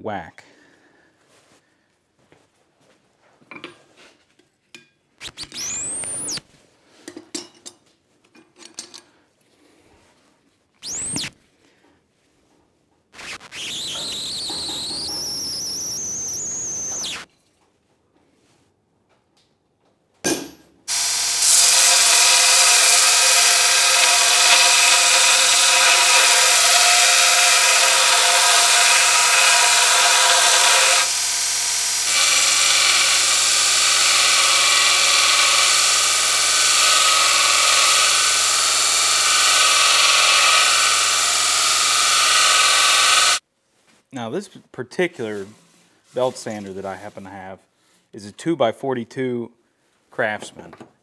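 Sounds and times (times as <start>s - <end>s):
belt sander grinding metal: 20.9s - 43.4s
motor hum: 20.9s - 43.4s.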